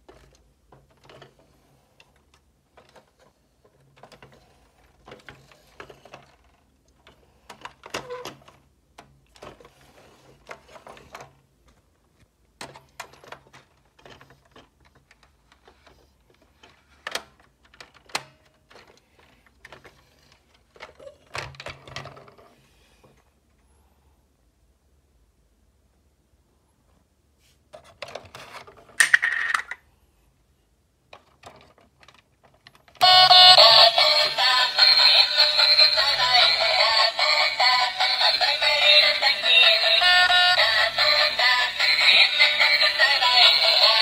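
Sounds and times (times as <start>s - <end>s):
plastic toy car clicks and rattles: 0.0s - 11.8s, 12.6s - 22.5s, 27.7s - 29.8s, 31.1s - 33.0s, 34.0s - 44.0s.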